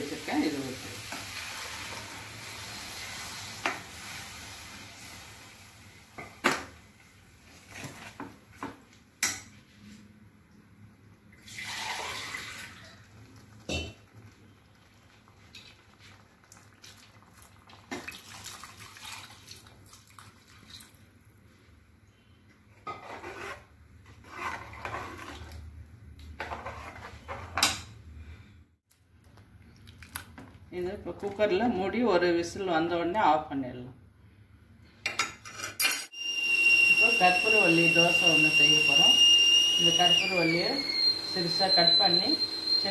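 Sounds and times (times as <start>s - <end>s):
liquid pouring into pot: 11.4s - 21.0s
ladle scraping and clinking in pot: 22.8s - 25.6s, 26.4s - 27.8s.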